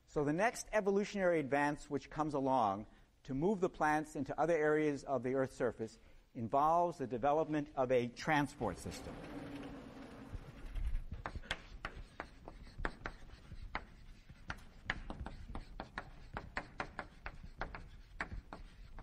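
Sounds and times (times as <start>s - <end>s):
chalk tapping and scraping on blackboard: 9.9s - 19.0s.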